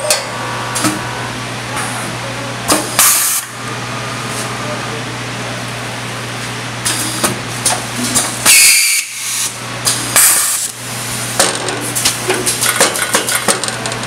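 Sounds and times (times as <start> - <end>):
packing machine humming: 0.0 - 14.0.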